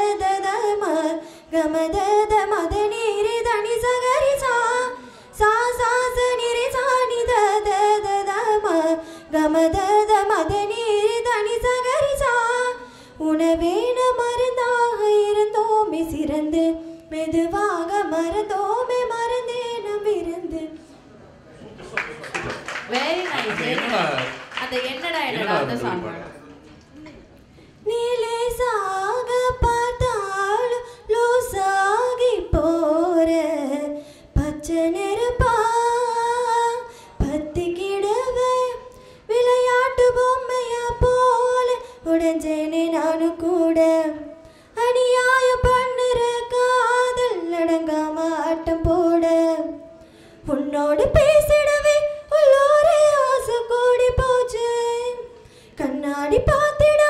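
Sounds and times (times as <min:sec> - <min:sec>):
girl singing unaccompanied: 0:00.0 - 0:20.8, 0:27.8 - 0:57.0.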